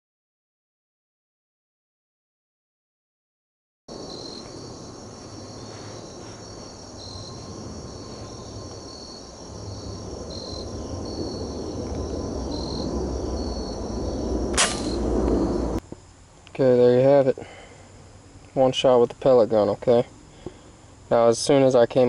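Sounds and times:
insects chirring: 3.9 - 22.0
low rumble: 4.0 - 15.8
air rifle shot: 14.5 - 15.4.

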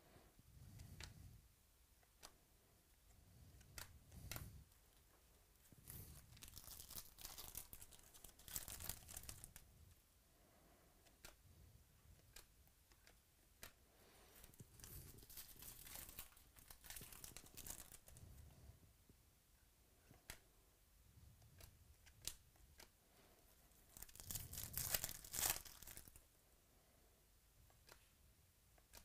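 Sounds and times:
foil wrapper crinkling and tearing: 5.9 - 9.6, 14.8 - 18.2, 23.9 - 26.2.

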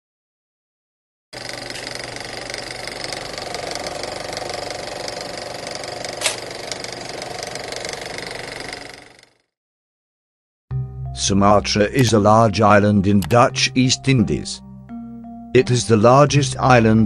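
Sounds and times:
film projector clatter and whir: 1.4 - 9.6
sharp click: 6.2 - 6.5.

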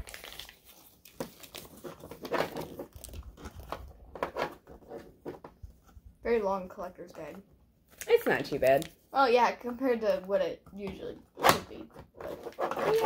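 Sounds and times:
paper crinkling: 0.0 - 3.9.

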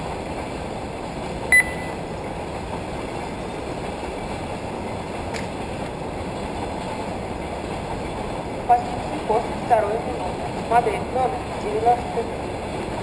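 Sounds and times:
short high electronic beep: 1.5 - 2.0.

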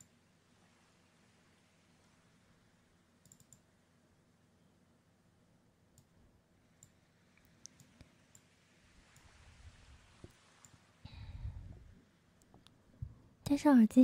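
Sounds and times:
soft clicks: 3.2 - 3.7, 5.9 - 6.2, 6.8 - 8.5.

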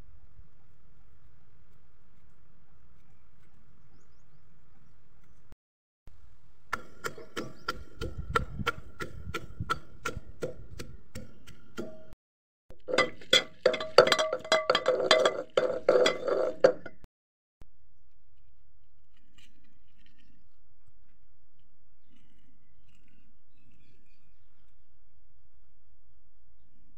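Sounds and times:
pestle pounding in a mortar: 6.7 - 12.1.

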